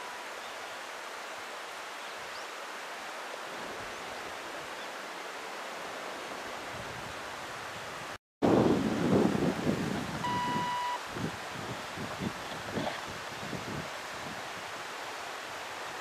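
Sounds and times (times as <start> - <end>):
mountain stream rushing: 0.0 - 16.0
wind on microphone: 6.3 - 16.0.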